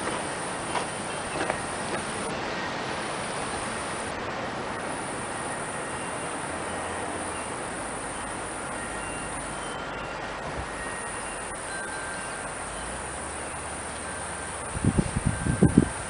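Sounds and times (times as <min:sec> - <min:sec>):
outdoor background hiss: 0:00.0 - 0:16.0
faint high-pitched tones: 0:00.4 - 0:16.0.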